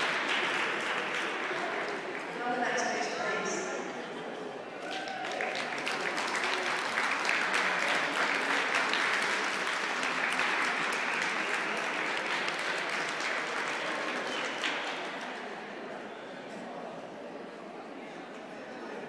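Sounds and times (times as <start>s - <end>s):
audience applauding: 0.0s - 2.4s, 4.8s - 15.7s.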